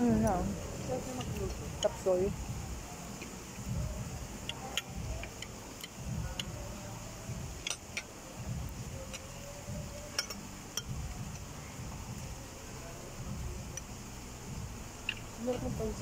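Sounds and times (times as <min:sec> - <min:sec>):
low background rumble: 0:00.0 - 0:16.0.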